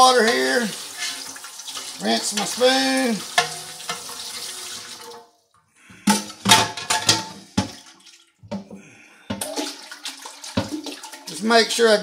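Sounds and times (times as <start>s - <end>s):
tap water running: 0.0s - 12.0s
metal spoon clanking on pot: 3.4s - 4.0s.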